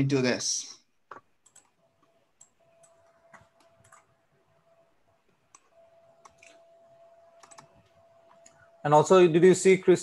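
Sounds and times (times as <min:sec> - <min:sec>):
computer keyboard and mouse clicks: 0:01.1 - 0:04.1, 0:05.5 - 0:06.6, 0:07.3 - 0:08.6
faint steady tone: 0:01.8 - 0:09.1.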